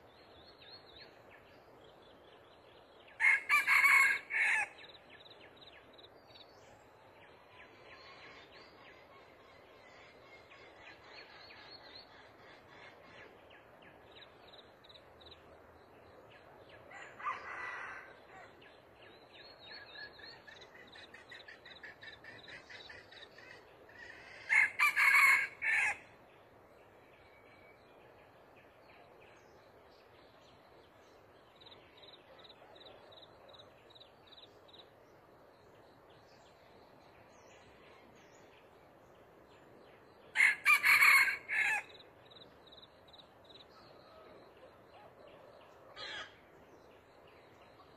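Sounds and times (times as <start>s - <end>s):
rooster crowing: 3.2s - 4.8s, 24.5s - 26.0s, 40.4s - 41.9s.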